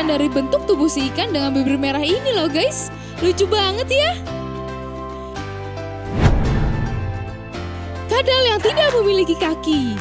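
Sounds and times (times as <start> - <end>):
background music: 0.0 - 10.0
whoosh transition effect: 6.0 - 7.7.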